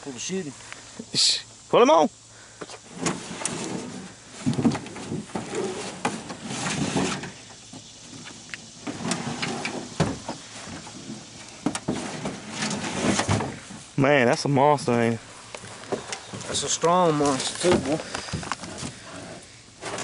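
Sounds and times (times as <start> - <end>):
turtle knocking and scraping in boat: 2.8 - 13.9.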